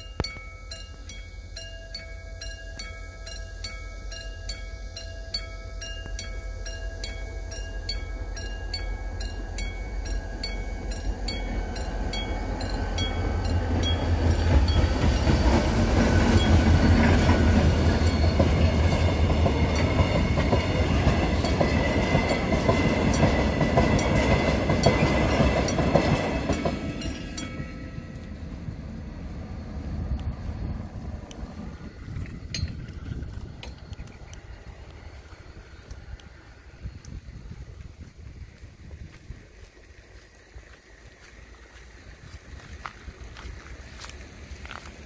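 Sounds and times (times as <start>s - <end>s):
level crossing bell ringing: 0.0s - 14.1s
train wheels clicking on rails: 0.0s - 29.4s, 30.0s - 45.0s
train engine hum: 0.0s - 45.0s.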